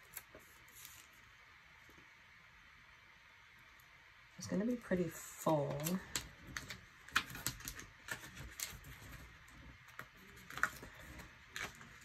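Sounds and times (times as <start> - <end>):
paper sheets flipping: 0.0 - 1.2, 5.6 - 12.0
sharp paper ticks: 5.6 - 12.0.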